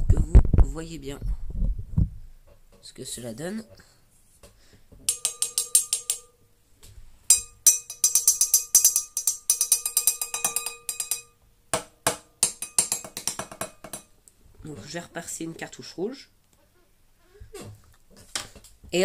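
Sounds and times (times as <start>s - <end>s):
wine glass tapped and ringing: 5.1s - 6.4s, 7.3s - 11.4s, 12.1s - 14.1s.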